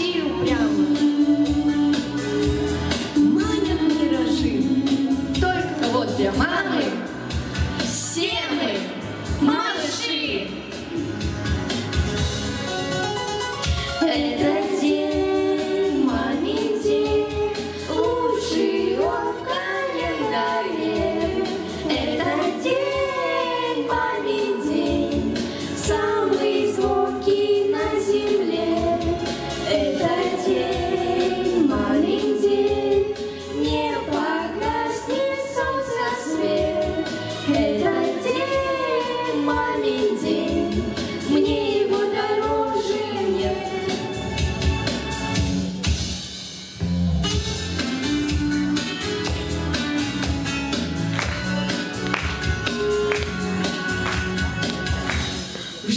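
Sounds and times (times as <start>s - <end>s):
children singing together: 14.2s - 44.1s.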